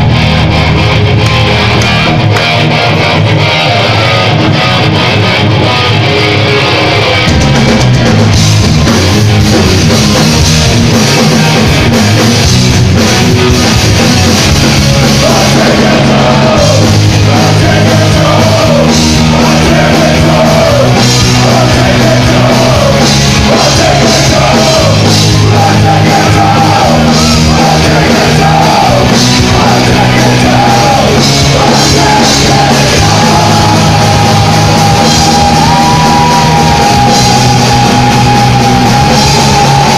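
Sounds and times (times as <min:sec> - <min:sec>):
rock band playing loud: 0:00.0 - 0:39.9
shouted vocals: 0:15.1 - 0:39.9.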